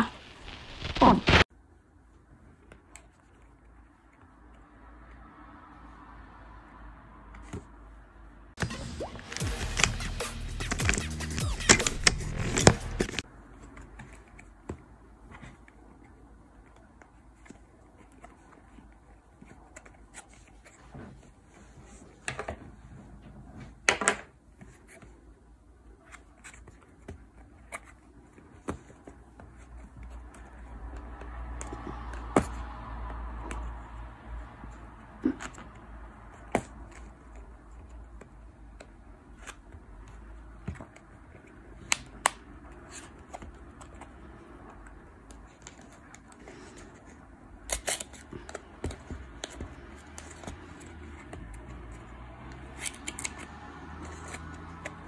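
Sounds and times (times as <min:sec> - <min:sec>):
cardboard scraping: 0:00.0 - 0:01.4, 0:09.3 - 0:13.2.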